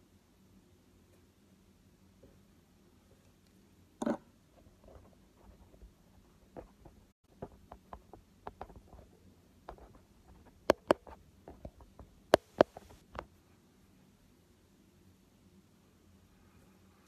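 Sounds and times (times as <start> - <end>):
fingers tapping on phone: 10.6 - 13.3.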